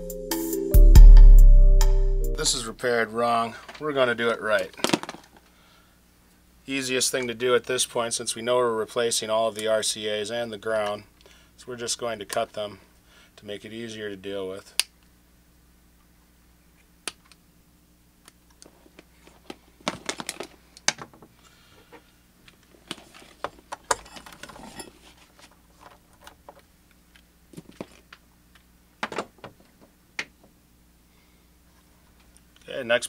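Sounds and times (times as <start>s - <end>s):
wires rustling against plastic: 3.5s - 5.6s, 18.5s - 28.6s.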